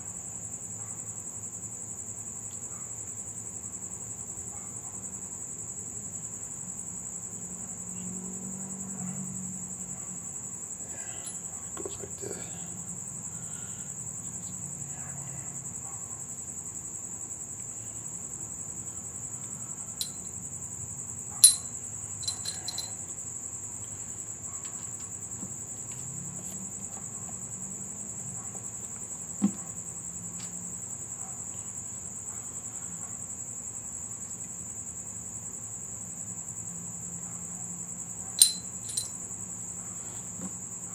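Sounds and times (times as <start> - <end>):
metallic clicks of engine parts: 21.4 - 22.9, 38.4 - 39.1.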